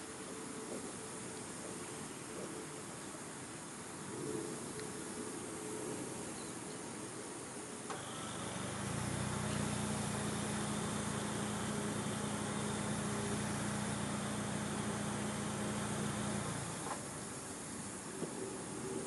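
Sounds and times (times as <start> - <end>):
steady background hiss: 0.0 - 19.0
vehicle engine running: 7.9 - 17.5.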